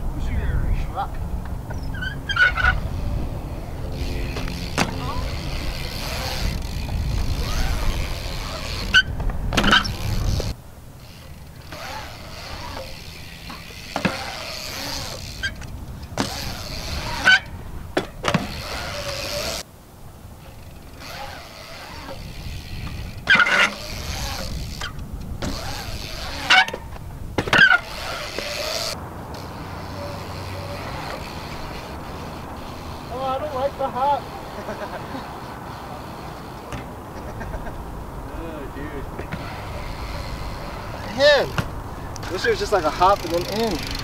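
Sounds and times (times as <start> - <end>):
wind rumble on microphone: 0.0 - 10.8, 14.9 - 29.7
tyres rolling on concrete: 1.1 - 19.7, 20.4 - 44.0
bike knocking on ramps: 3.9 - 10.6, 11.6 - 19.6, 22.0 - 29.4, 41.1 - 44.0.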